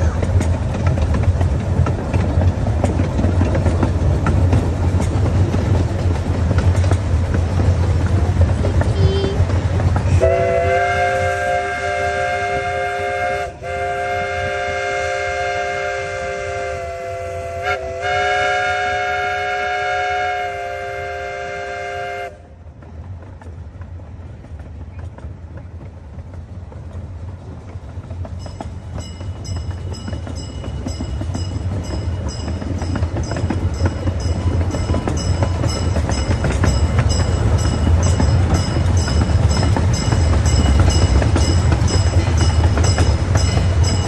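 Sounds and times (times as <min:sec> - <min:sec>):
train rumbling along rails: 0:00.0 - 0:44.0
chime steam whistle blowing: 0:10.1 - 0:22.4.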